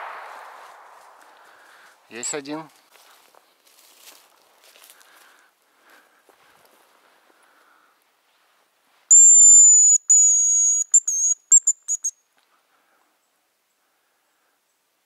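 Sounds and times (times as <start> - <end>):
high bird call whistle: 9.1 - 12.2.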